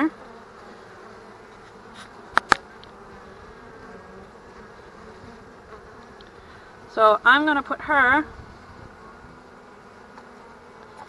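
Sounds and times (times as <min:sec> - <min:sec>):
bees buzzing: 0:00.0 - 0:11.0
sharp clicks: 0:02.3 - 0:02.9.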